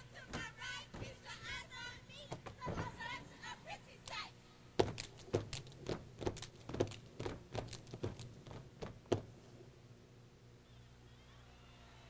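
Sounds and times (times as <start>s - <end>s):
stomps: 4.8s - 9.4s.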